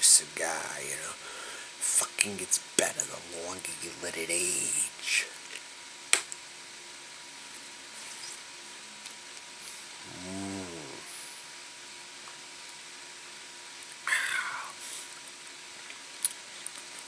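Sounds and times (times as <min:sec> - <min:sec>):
faint background hum: 0:00.0 - 0:17.0
breathy exhale: 0:01.2 - 0:01.8
man humming: 0:10.0 - 0:11.3, 0:14.1 - 0:14.8.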